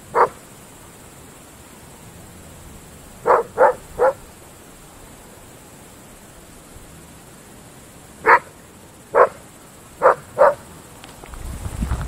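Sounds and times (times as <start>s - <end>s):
dog barking: 0.1s - 0.4s, 3.2s - 4.3s, 8.2s - 9.4s, 10.0s - 10.6s.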